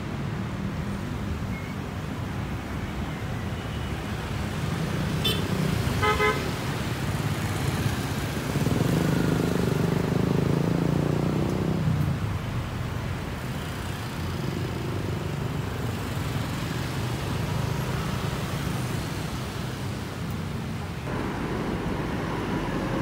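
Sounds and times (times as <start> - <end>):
hum of passing cars: 0.0 - 23.0
motorbikes passing: 4.4 - 23.0
bus passing: 13.3 - 23.0.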